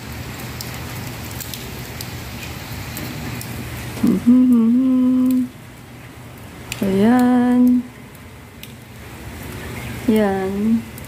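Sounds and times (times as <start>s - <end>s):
rain falling on tiles: 0.0s - 11.0s
water dripping: 0.0s - 11.0s
woman humming a note: 4.0s - 5.5s.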